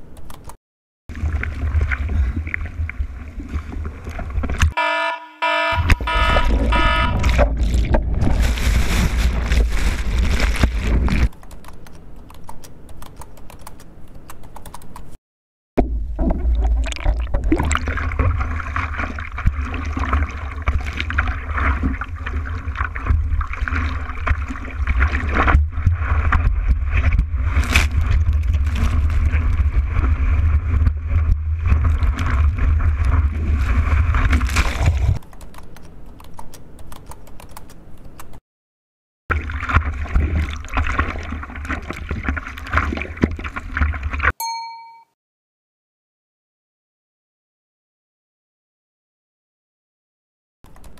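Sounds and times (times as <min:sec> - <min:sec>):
sea water rushing and splashing: 0:17.6 - 0:35.2, 0:39.3 - 0:44.3.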